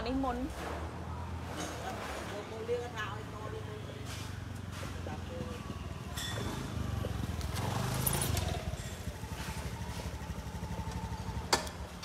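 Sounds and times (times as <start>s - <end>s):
motorcycle engine idling: 5.2s - 12.0s.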